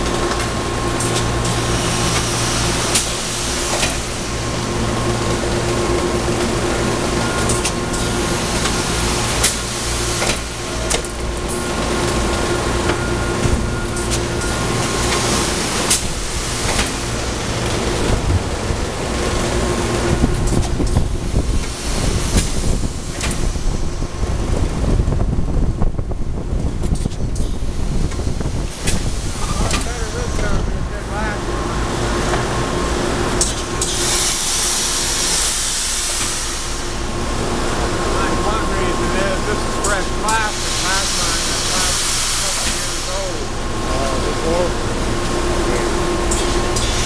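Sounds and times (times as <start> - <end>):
industrial machinery noise: 0.0 - 47.0
loud hiss: 33.8 - 37.0, 38.6 - 44.2.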